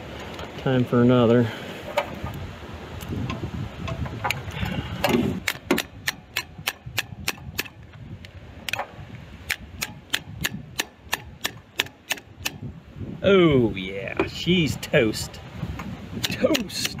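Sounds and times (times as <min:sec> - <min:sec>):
ratchet wrench clicking: 0:09.5 - 0:12.6.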